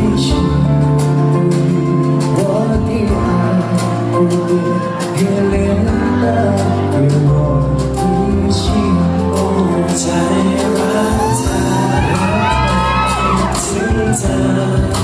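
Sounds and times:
male singer over backing track: 0.0 - 15.0
fans shrieking and cheering: 10.9 - 14.9.

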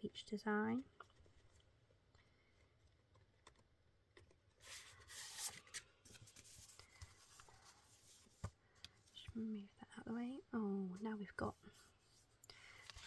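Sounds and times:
paper rustling: 4.5 - 8.5.

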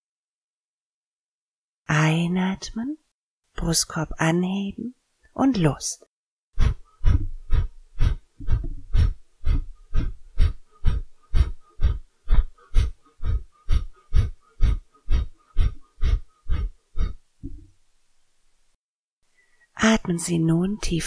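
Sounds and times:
forceful nasal exhalations: 6.6 - 17.6.

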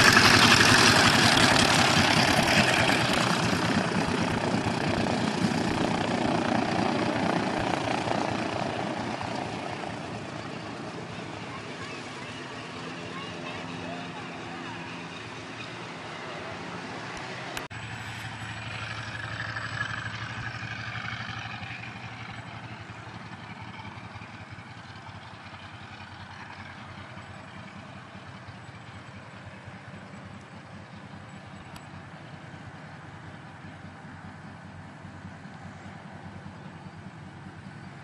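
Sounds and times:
aircraft radial engine roaring: 0.0 - 38.0.

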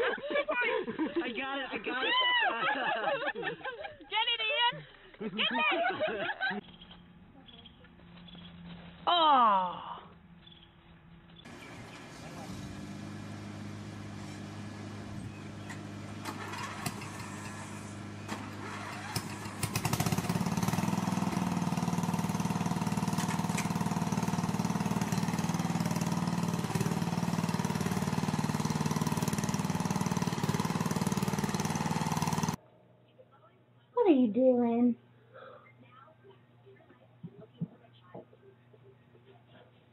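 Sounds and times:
riding lawn mower engine: 10.2 - 32.6.

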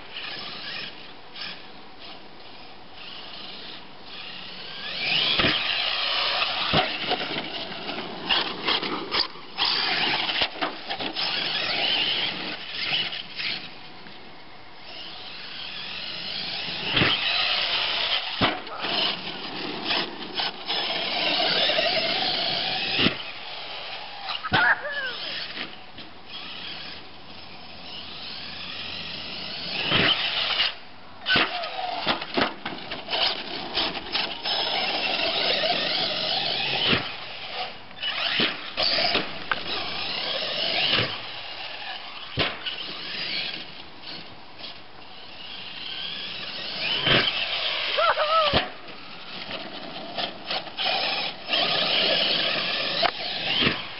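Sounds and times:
rc truck motor whining: 0.0 - 53.9
sharp knocks from landings: 5.2 - 7.5, 16.9 - 19.1, 42.3 - 42.8.

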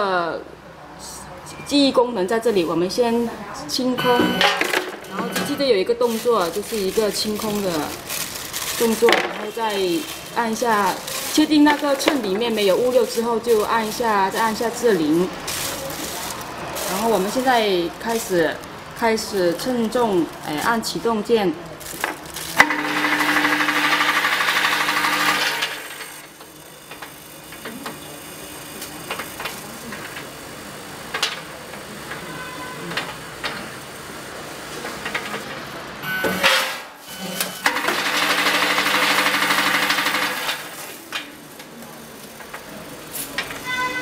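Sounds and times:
vibratory feed trays buzzing: 4.0 - 41.0.

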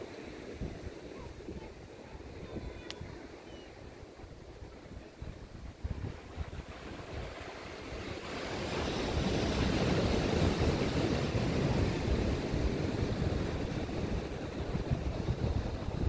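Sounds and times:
wind gusting over microphone: 0.0 - 16.0
ocean surf: 4.6 - 16.0.

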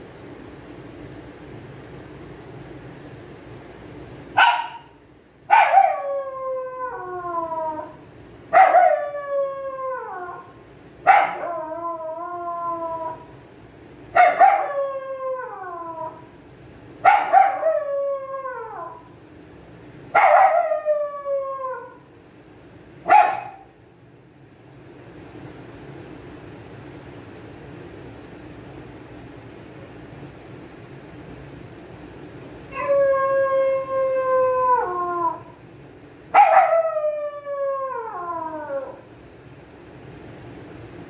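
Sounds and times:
dog howling: 5.5 - 13.3, 14.2 - 16.3, 17.1 - 19.1, 20.2 - 22.1, 32.7 - 35.6, 36.4 - 39.1.

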